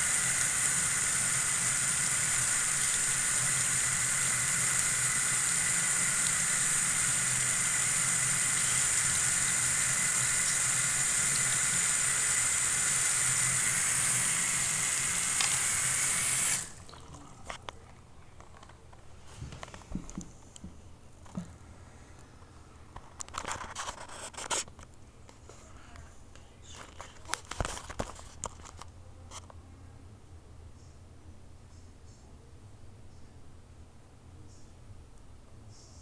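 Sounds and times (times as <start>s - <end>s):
faucet water running into sink: 0.0s - 17.1s.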